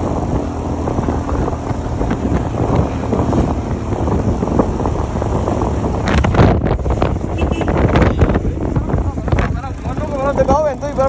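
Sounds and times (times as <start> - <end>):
motorcycle engine running: 0.0 - 11.0
wind buffeting on microphone: 0.0 - 11.0.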